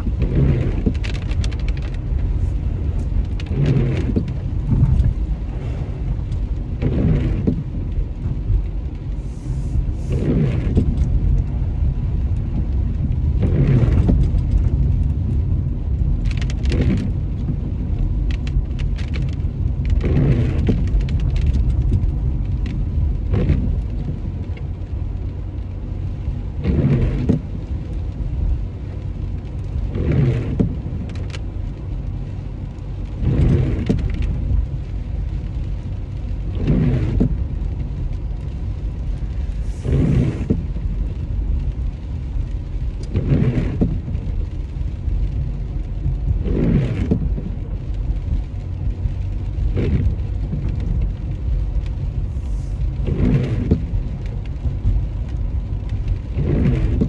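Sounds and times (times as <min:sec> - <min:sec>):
car cabin road rumble: 0:00.0 - 0:57.0.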